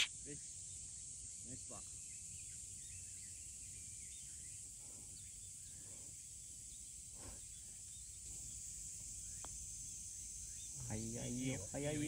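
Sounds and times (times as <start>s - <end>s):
faint bird chirps: 0.0s - 12.0s
high-pitched insect chorus: 0.0s - 12.0s.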